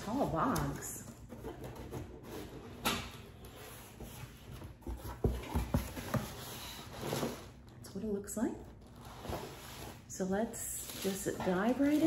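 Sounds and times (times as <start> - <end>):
cardboard rustling: 0.0 - 7.6
cardboard knocks and creaks: 4.6 - 6.4.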